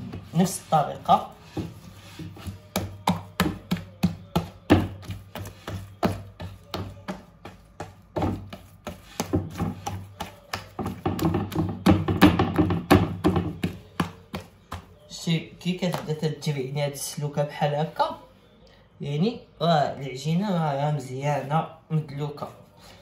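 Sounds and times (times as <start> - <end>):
dough crackling and popping: 0.0 - 16.3
wet dough slapping: 0.0 - 16.4.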